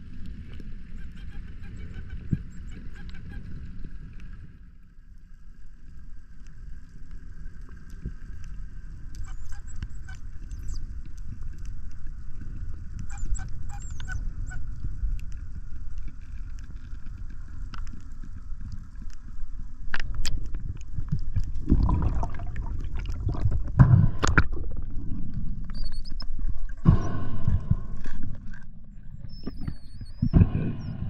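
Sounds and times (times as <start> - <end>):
muffled underwater rumble: 0.0 - 31.0.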